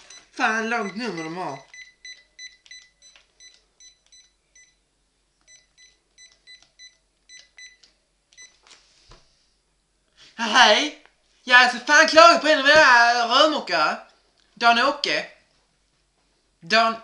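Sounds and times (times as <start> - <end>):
phone keypad beeps: 0.0 - 4.8, 5.5 - 7.8.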